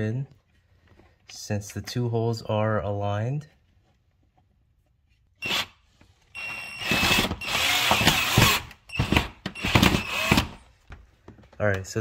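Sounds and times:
cordless drill whining: 5.4s - 10.6s
drill click: 6.4s - 10.6s.

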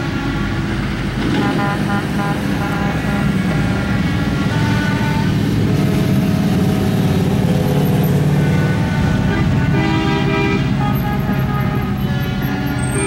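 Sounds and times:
vehicle horn: 0.0s - 5.6s, 8.3s - 13.0s
motorcycles passing: 0.0s - 13.0s.

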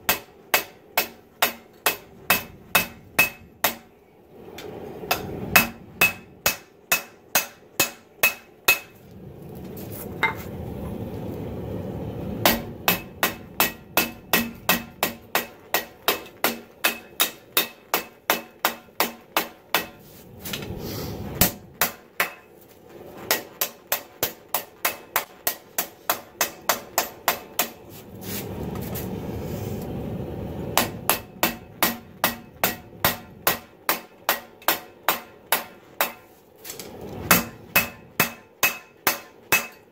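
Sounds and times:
hammer striking hot steel on anvil: 0.0s - 4.0s, 5.1s - 9.0s, 10.2s - 10.5s, 12.4s - 22.6s, 23.3s - 27.8s, 30.8s - 36.4s, 37.2s - 39.9s
steady rushing noise: 0.0s - 39.6s.

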